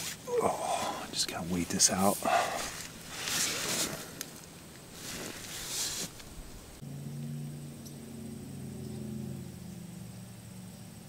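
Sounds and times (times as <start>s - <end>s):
soft rustling hisses: 0.0s - 6.8s.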